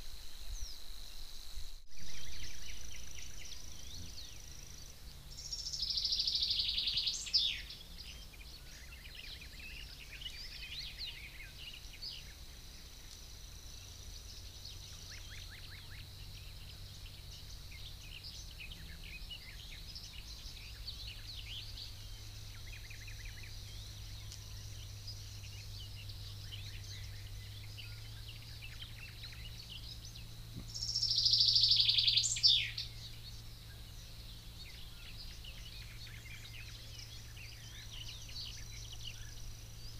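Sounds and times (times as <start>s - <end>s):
faint bird chirps: 0.0s - 39.9s
faint low hum: 0.0s - 39.9s
songbird song phrase: 0.0s - 39.9s.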